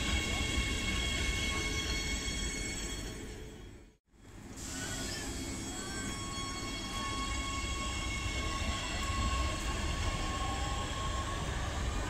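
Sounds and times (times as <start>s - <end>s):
wheels rumbling on track: 0.0s - 3.7s
electric train whine: 0.0s - 12.0s.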